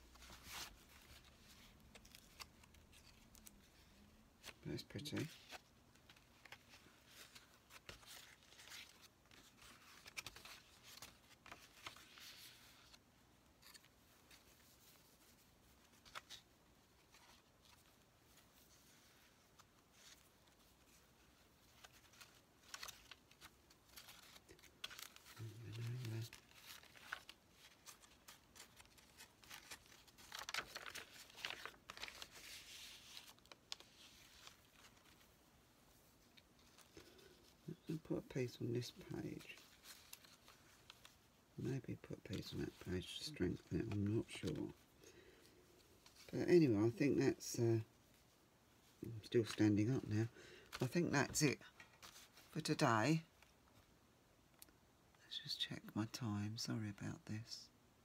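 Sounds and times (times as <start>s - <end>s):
paper rustling and crinkling: 0.0s - 46.7s, 47.8s - 53.9s
paper rustling and clicks: 21.8s - 35.2s.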